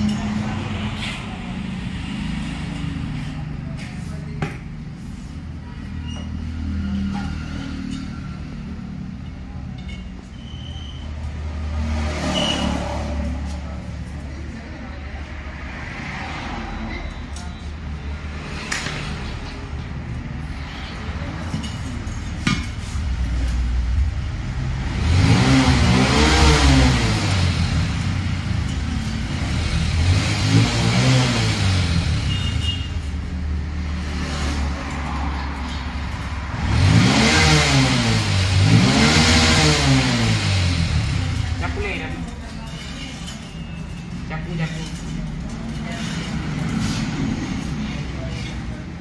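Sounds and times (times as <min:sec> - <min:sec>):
engine revving: 0:11.3 - 0:13.6, 0:23.9 - 0:42.2.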